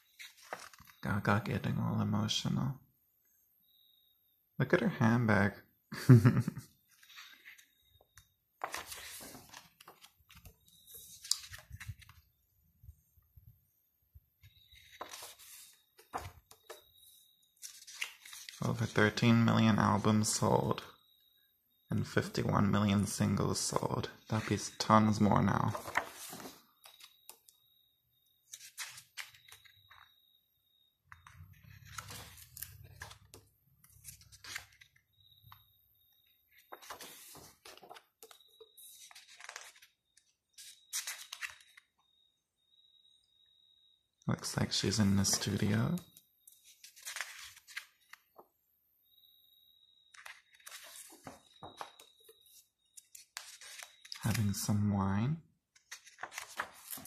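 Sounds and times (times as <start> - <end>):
book pages turning: 0.0 - 1.2, 6.9 - 13.0, 14.4 - 19.5, 23.2 - 27.4, 28.4 - 30.1, 31.1 - 35.7, 36.3 - 41.9, 45.1 - 48.4, 50.1 - 54.8, 55.7 - 57.0.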